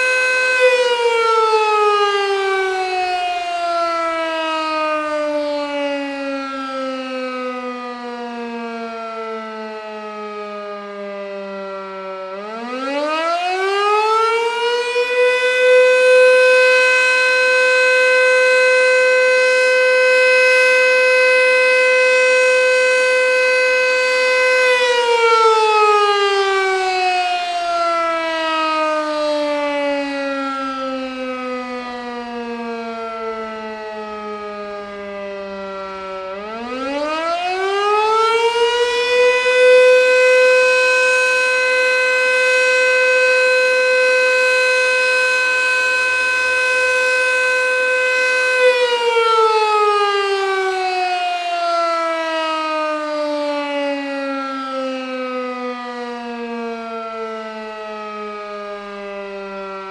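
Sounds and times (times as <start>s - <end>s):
electromechanical siren wailing: 0.0s - 59.9s.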